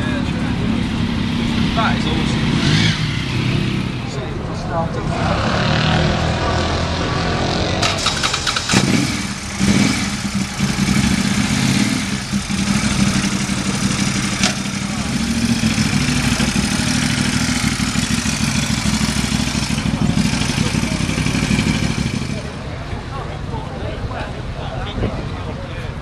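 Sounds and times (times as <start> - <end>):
motorcycle engine starting and idling: 7.6 - 22.9.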